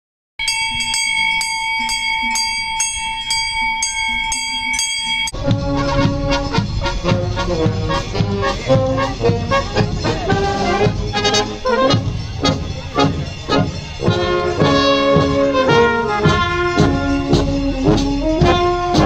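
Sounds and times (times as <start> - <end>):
cowbell ringing: 0.4 - 19.0
brass band playing a march: 5.3 - 19.0.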